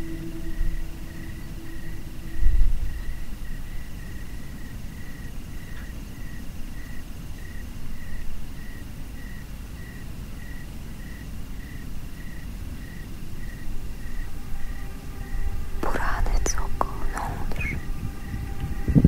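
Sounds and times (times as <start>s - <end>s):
low rumble: 0.0s - 6.3s, 13.3s - 19.0s
cricket chirping: 0.0s - 19.0s
thin insect trill: 0.0s - 19.0s.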